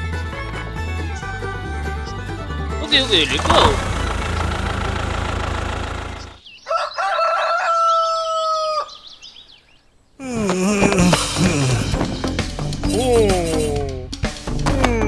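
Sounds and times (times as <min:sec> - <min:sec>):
low engine hum: 0:01.0 - 0:06.4
small birds chirping: 0:01.0 - 0:13.9
rooster crowing: 0:06.6 - 0:09.2.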